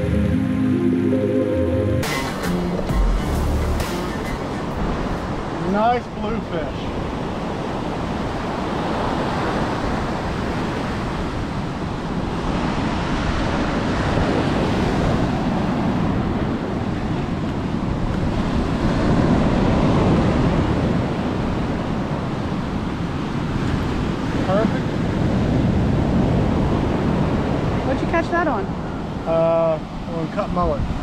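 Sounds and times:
ocean surf breaking: 0:00.0 - 0:31.0
wind on microphone: 0:06.9 - 0:29.2.

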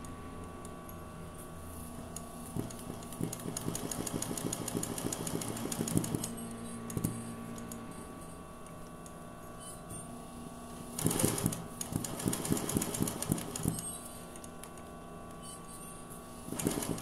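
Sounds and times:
sewing machine stitching: 0:02.6 - 0:06.4, 0:11.0 - 0:14.0, 0:16.5 - 0:17.0.

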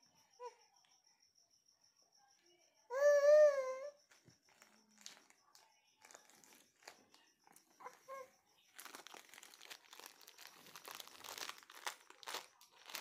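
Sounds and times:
plastic wrapper crinkling: 0:04.6 - 0:05.3, 0:06.0 - 0:07.6, 0:08.7 - 0:13.0.

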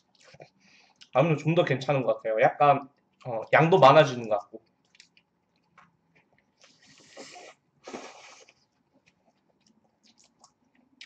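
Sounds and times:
person chewing food: 0:00.0 - 0:01.2, 0:04.6 - 0:11.0.

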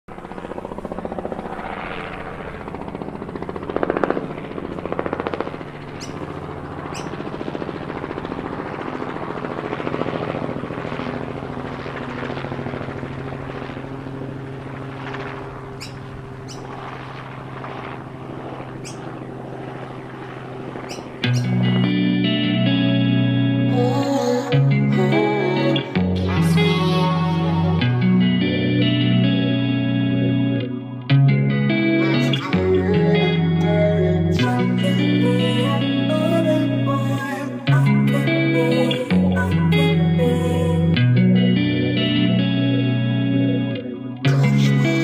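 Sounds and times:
toy helicopter motor buzzing: 0:03.7 - 0:07.3, 0:15.3 - 0:19.8, 0:20.8 - 0:21.7.

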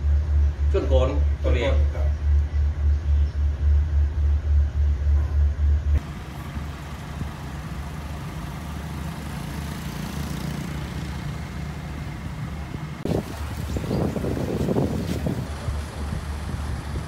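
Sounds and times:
car engine hum and road noise: 0:00.0 - 0:17.0
wind buffeting microphone: 0:10.6 - 0:17.0.

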